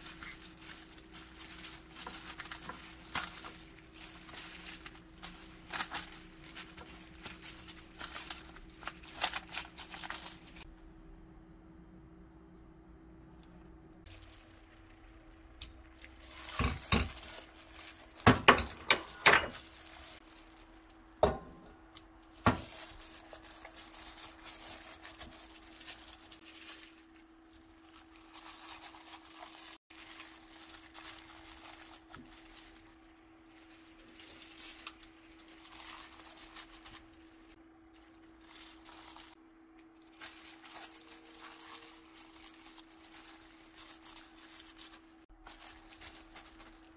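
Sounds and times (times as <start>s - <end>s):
plastic glove rustling: 0.0s - 10.7s, 13.4s - 46.9s
faint steady hum: 0.0s - 46.9s
kitchenware clattering knocks: 18.2s - 19.6s.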